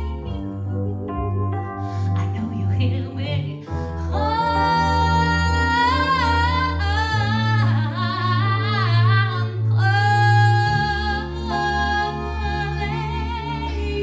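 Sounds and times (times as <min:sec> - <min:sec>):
woman singing with vibrato: 0:00.0 - 0:00.7, 0:01.9 - 0:14.0
electric keyboard chords: 0:00.0 - 0:14.0
harmonica playing: 0:11.0 - 0:14.0.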